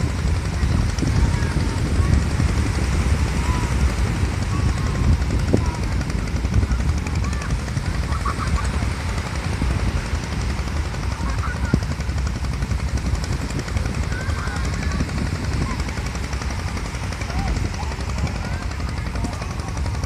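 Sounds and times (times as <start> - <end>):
sea waves washing: 0.0 - 20.0
wind buffeting microphone: 0.0 - 20.0.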